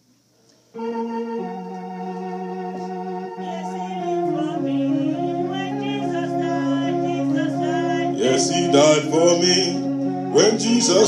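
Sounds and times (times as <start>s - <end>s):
organ chords: 0.0s - 11.0s
voices singing a hymn: 2.4s - 11.0s.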